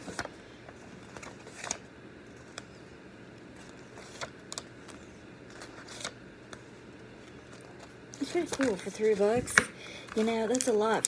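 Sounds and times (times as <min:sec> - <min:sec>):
book pages rustling: 0:00.0 - 0:02.8, 0:03.5 - 0:09.4.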